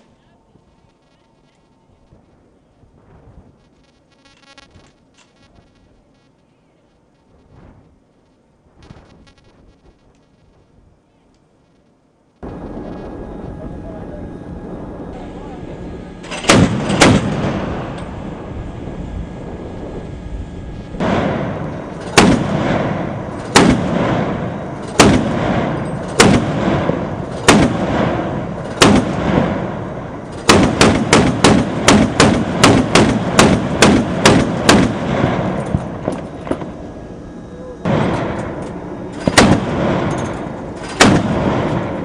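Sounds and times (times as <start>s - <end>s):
gunshots with booming tail: 16.2s - 36.8s, 37.8s - 42.0s.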